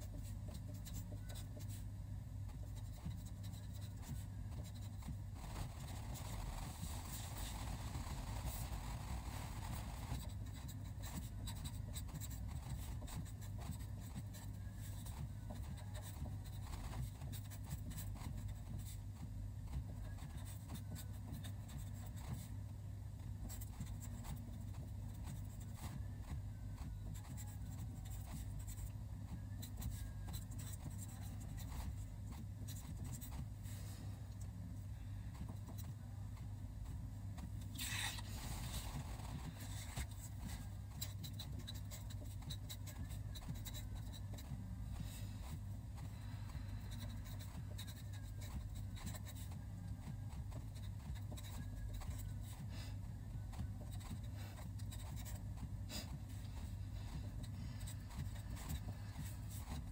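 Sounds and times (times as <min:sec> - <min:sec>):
pen scratching on paper: 0:00.0 - 0:01.9, 0:02.5 - 0:22.6, 0:23.2 - 0:34.0, 0:35.4 - 0:59.9
steady low hum: 0:00.0 - 0:59.9.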